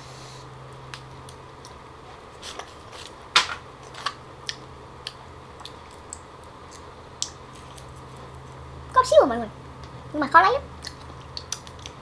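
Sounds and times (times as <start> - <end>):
mouth clicks chewing: 10.8 - 12.0.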